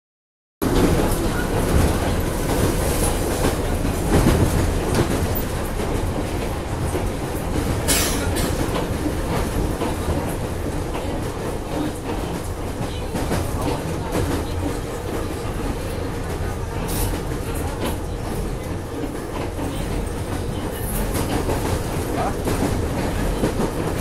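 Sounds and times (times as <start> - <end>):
train running gear rumble: 0.6 - 24.0.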